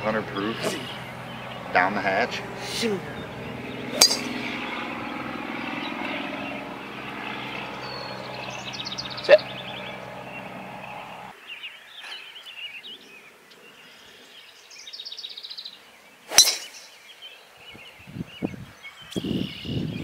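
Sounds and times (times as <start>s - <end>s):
low hum: 0.0s - 11.3s
birds chirping: 0.0s - 20.0s
golf club striking ball: 3.4s - 4.6s, 16.3s - 16.8s.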